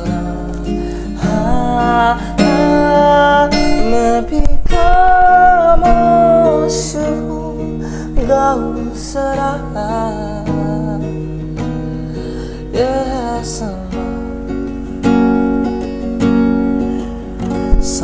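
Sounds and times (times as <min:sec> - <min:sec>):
man singing long notes: 0:00.0 - 0:11.2
strummed acoustic guitar: 0:00.0 - 0:18.0.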